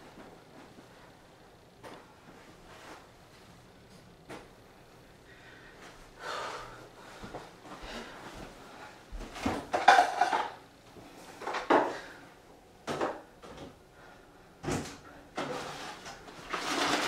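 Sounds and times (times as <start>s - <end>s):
dishes knocking and clattering: 9.4s - 10.6s.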